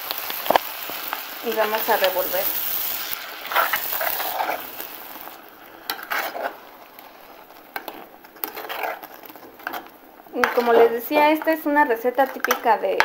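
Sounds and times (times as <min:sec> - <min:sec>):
food sizzling: 0:00.0 - 0:13.0
spoon scraping clay pot: 0:05.8 - 0:11.0.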